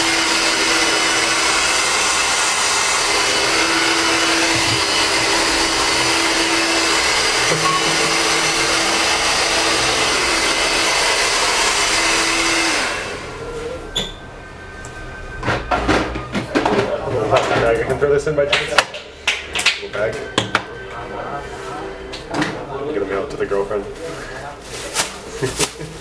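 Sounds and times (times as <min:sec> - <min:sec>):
electric hair clippers buzzing: 0:00.0 - 0:13.4.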